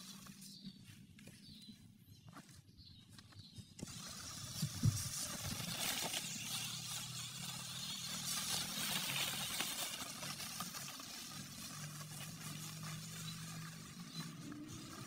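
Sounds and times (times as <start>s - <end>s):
small electric motor whirring: 3.8s - 15.0s
tyres rustling through dry leaves: 3.8s - 15.0s.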